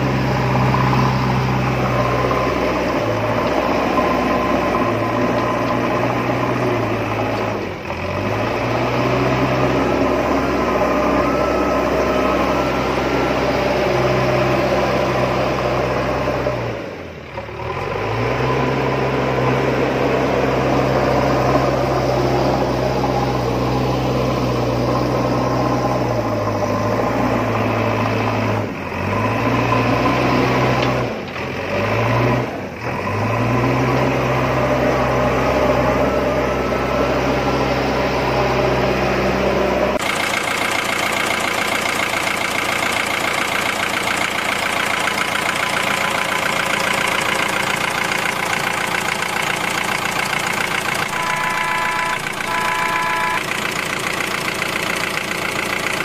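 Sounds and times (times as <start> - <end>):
small machine engine running: 40.0 - 56.0.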